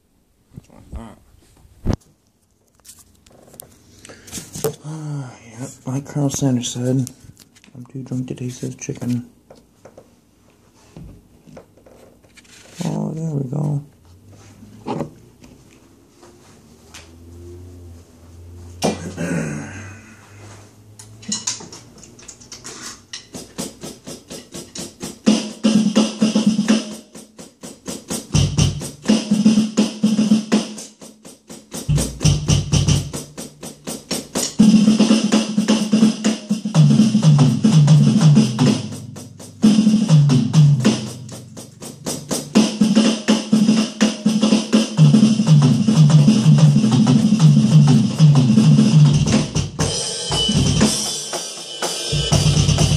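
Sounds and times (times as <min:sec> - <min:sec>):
electronic drum kit groove: 0:23.2 - 0:52.9
backing music with bass line: 0:31.7 - 0:52.9
heavy low drum hits: 0:31.9 - 0:33.1.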